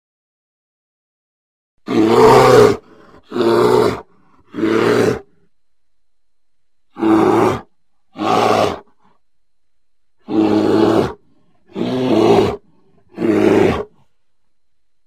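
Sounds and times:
bear roaring: 1.8 - 5.4, 6.9 - 9.1, 10.2 - 14.1.

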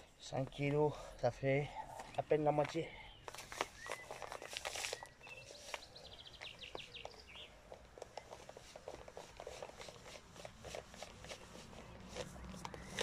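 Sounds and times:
bird chirping: 0.0 - 9.0.

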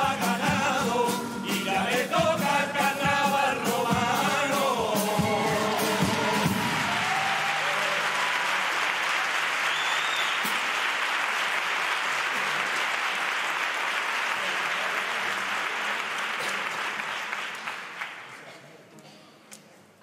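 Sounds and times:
choir singing: 0.0 - 7.4
audience applauding: 5.2 - 18.6.

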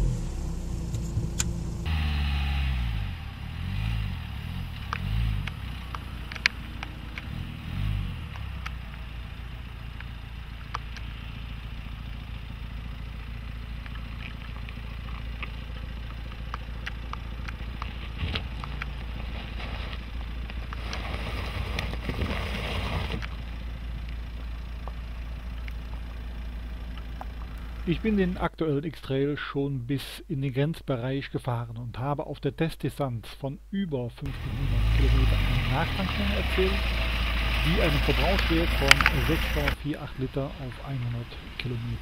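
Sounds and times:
diesel engine running at low revs: 0.0 - 28.7, 34.2 - 42.0
clicks under tyres: 4.7 - 28.2, 34.9 - 42.0.

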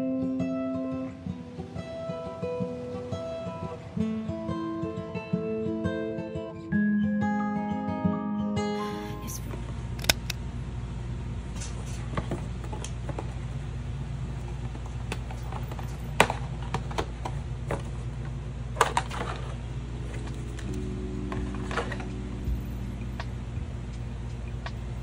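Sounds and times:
steady low hum: 8.8 - 25.0.

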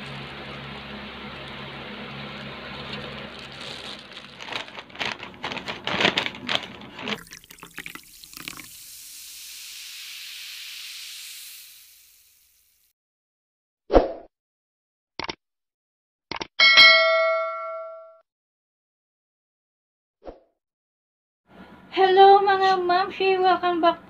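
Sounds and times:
paper bag and plastic crinkling: 1.4 - 7.7.

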